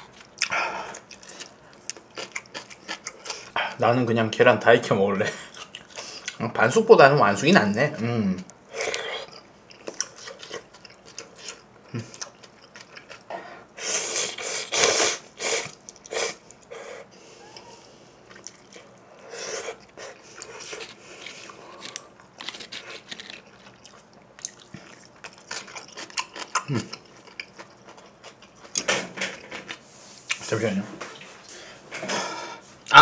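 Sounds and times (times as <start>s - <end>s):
wet chewing clicks: 19.8s - 28.8s.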